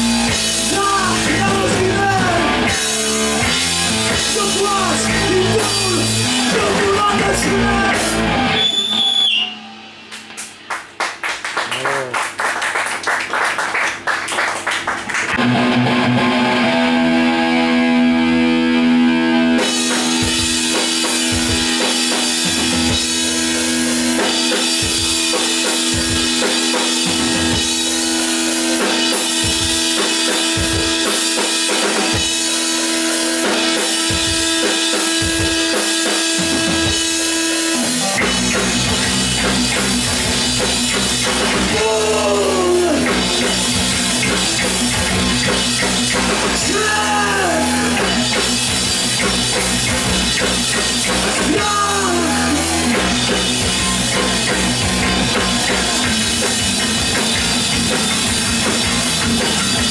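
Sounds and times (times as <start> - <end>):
live rock band playing: 0.0 - 11.0, 15.3 - 59.9
person singing: 4.3 - 8.1, 41.7 - 43.7, 46.4 - 48.4, 51.4 - 56.5.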